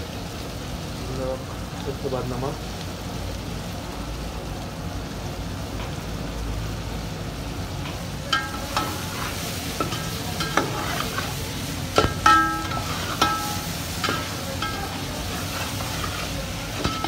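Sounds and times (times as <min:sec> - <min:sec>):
chicken sizzling in oil: 0:00.0 - 0:17.0.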